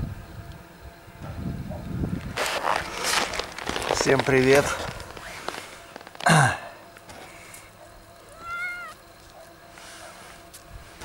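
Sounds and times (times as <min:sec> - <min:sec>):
cat meowing: 0:08.3 - 0:09.0.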